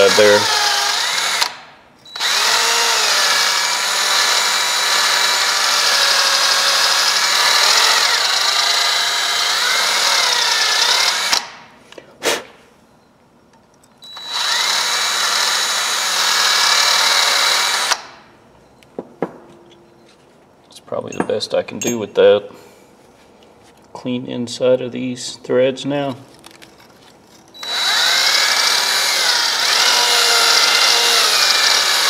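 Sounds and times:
drill with wire brush scrubbing metal: 0.0 - 11.4, 14.0 - 18.0, 27.6 - 32.0.

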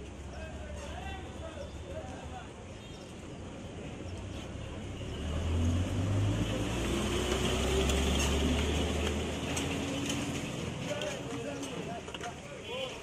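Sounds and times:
vehicle engine rumble passing: 4.2 - 10.9.

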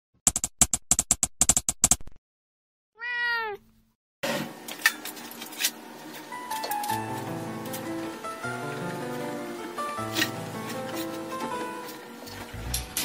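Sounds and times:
cat meowing: 3.0 - 3.6.

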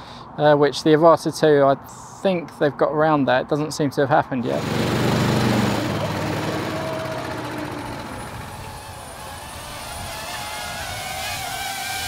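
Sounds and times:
go-kart engine passing: 4.5 - 12.0
higher wavering engine note: 4.6 - 8.9.

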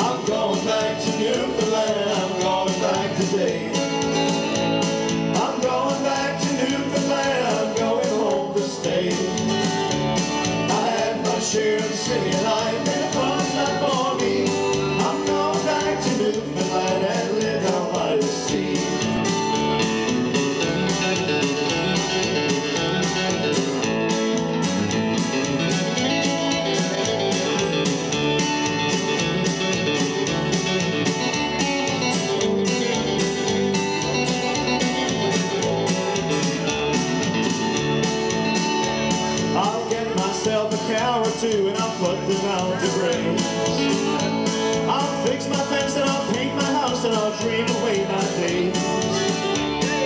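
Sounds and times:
man singing: 0.0 - 4.3, 5.2 - 9.8, 10.6 - 19.3, 39.4 - 50.0
electric bass guitar: 0.0 - 50.0
strummed acoustic guitar: 0.0 - 50.0.

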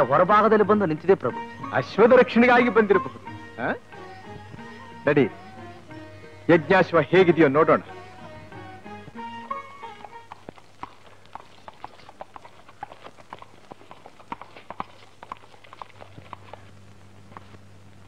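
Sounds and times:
steady low hum: 0.0 - 18.0
hooves clip-clopping on stone: 9.0 - 17.7.

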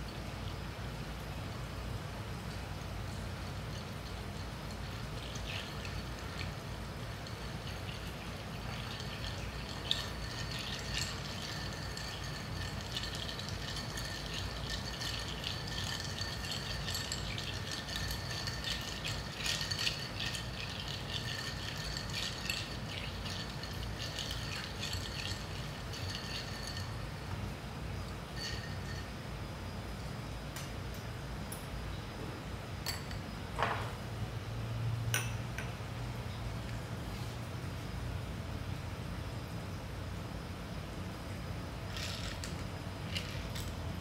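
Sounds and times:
ice clinking in glass: 3.4 - 29.2, 32.8 - 33.9, 41.9 - 43.8.

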